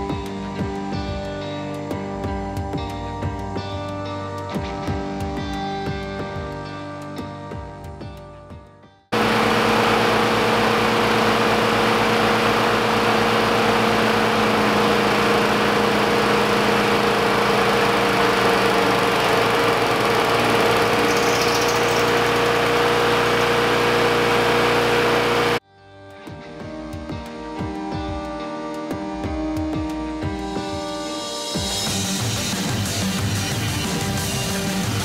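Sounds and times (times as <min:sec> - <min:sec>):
lawn mower engines running: 0:09.2 - 0:25.6, 0:32.1 - 0:35.0.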